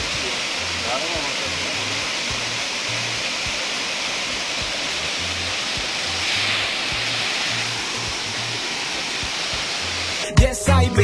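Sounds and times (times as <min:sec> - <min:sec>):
waterfall rushing over rock: 0:00.0 - 0:10.4
hip-hop reggae song: 0:10.2 - 0:11.0.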